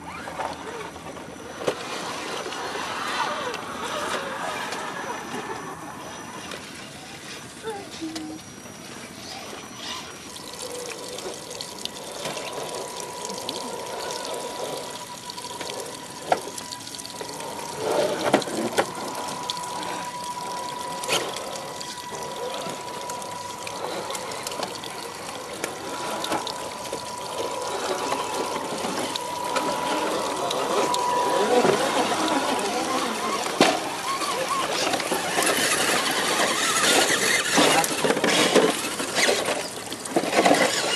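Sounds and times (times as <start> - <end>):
thin steady whine: 0.0 - 40.9
water trickling and dripping on rock: 9.8 - 40.9.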